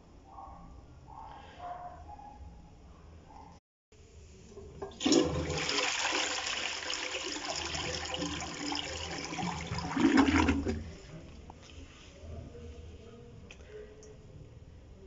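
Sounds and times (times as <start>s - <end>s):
toilet flushing: 4.5s - 11.0s.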